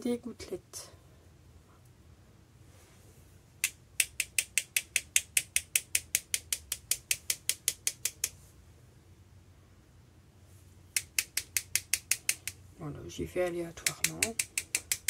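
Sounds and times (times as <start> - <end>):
paintbrush tapping on brush handle: 13.8 - 15.0.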